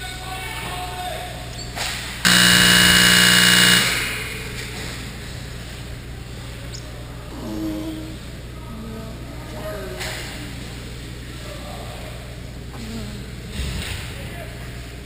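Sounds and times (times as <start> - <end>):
arena hum: 2.2 - 13.6
scoreboard buzzer horn: 2.3 - 4.2
faint voices: 3.2 - 15.0.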